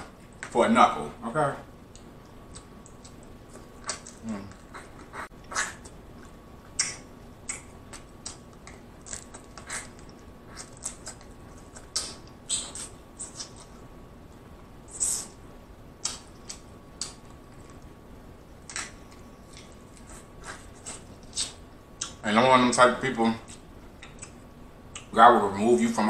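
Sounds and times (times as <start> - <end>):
chewing: 1.9 - 13.7
wet lip smacks: 6.7 - 13.6, 16.0 - 17.2.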